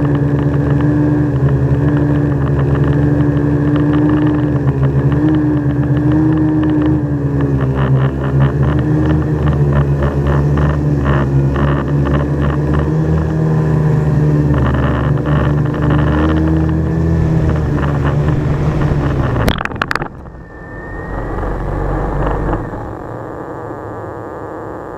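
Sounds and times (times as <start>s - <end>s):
drone propellers humming: 14.2s - 24.9s.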